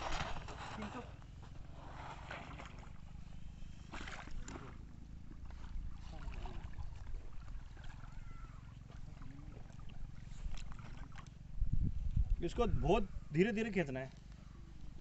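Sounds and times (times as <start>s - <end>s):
splashes on water: 5.6s - 11.4s.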